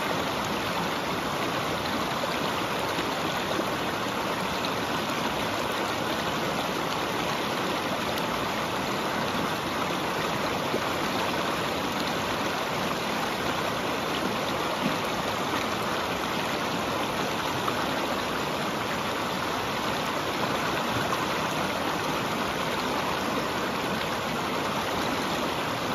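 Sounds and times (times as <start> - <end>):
stream rushing over stones: 0.0 - 25.9.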